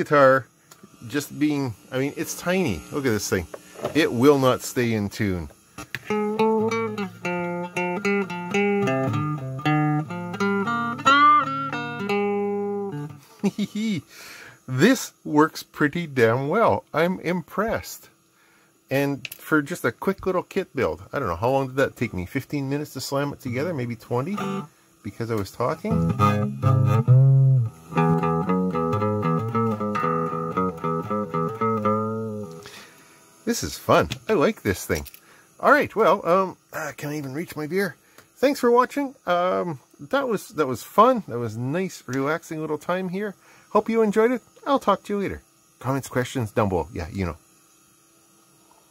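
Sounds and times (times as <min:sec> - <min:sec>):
electric guitar notes and chords: 0:06.0 - 0:13.5, 0:24.3 - 0:24.7, 0:25.7 - 0:32.8.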